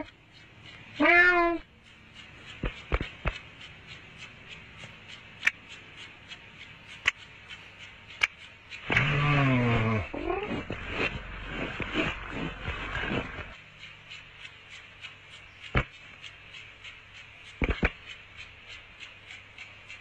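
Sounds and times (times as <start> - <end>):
sharp clicks: 0.0 - 20.0
cartoon cat meowing: 1.0 - 1.6.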